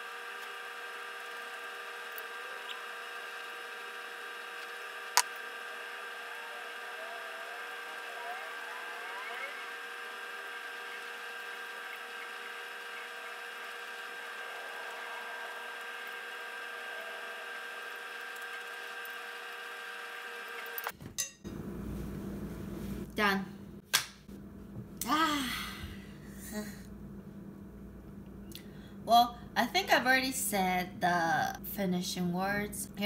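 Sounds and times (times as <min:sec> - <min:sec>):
machine motor hum with hiss: 0:00.0 - 0:20.9
faint wavering chirps: 0:05.8 - 0:18.2.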